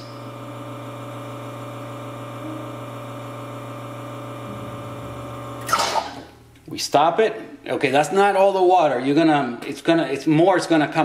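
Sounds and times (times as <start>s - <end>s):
espresso machine pump humming: 0.0s - 5.7s.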